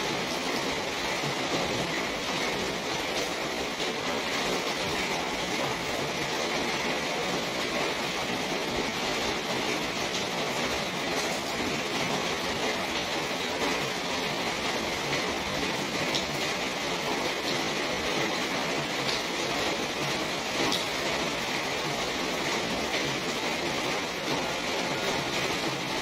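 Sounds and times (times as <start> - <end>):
steady rain: 0.0 - 26.0.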